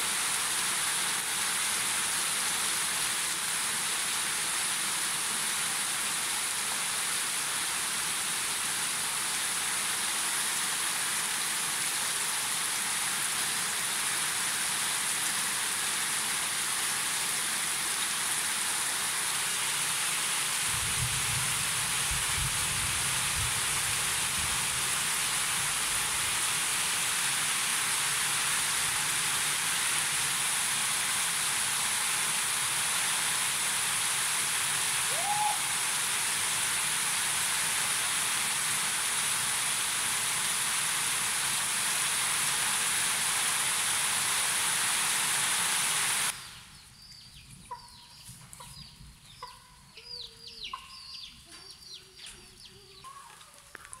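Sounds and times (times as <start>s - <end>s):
heavy rain on wet ground: 0.0s - 46.5s
chickens clucking and peeping: 47.4s - 54.0s.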